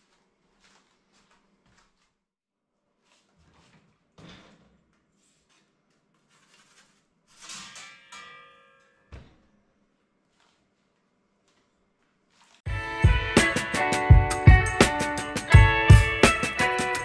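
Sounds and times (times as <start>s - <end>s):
metal peel scraping against oven: 7.3s - 8.4s.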